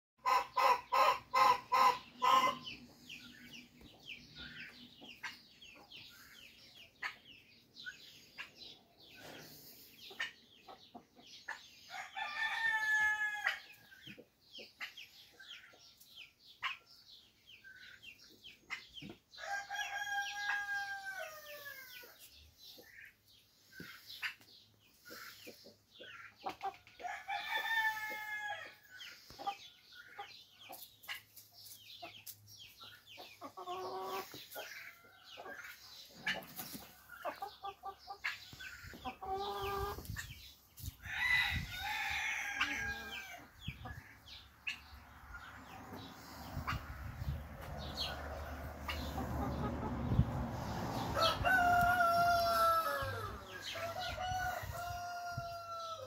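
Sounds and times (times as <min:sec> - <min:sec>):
hens clucking: 0:00.2 - 0:09.5, 0:32.9 - 0:40.4, 0:42.1 - 0:51.4.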